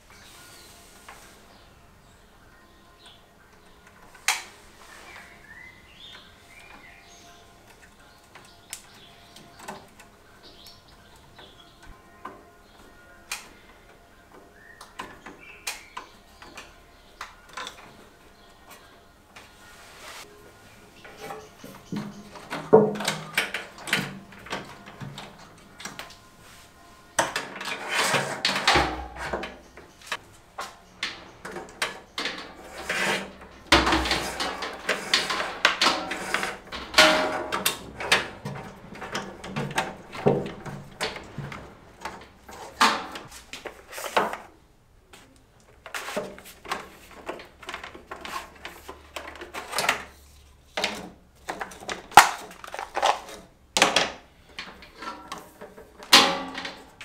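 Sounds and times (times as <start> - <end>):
wires clicking and knocking: 21.0 - 26.2, 27.2 - 44.5, 45.1 - 57.0.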